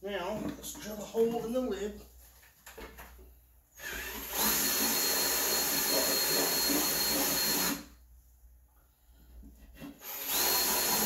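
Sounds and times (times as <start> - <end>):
cordless drill whining: 3.8 - 7.9, 10.0 - 11.0.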